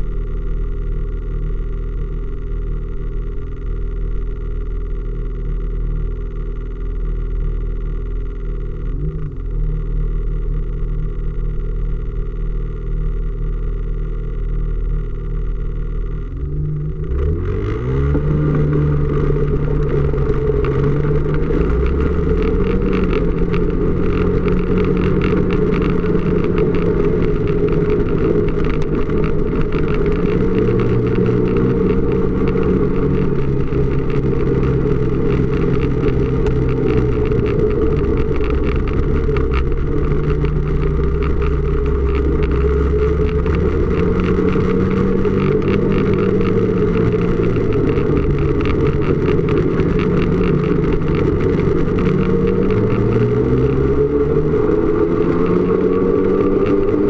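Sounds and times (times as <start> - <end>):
snowmobile engine revving: 16.4 - 57.0.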